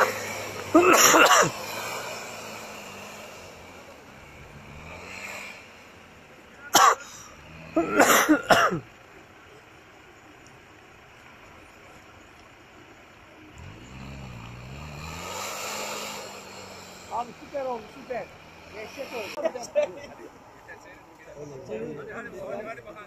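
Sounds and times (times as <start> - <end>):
faint vehicle engine in snow: 0.0 - 23.0
person coughing: 0.7 - 1.6, 6.8 - 7.1, 7.8 - 8.8.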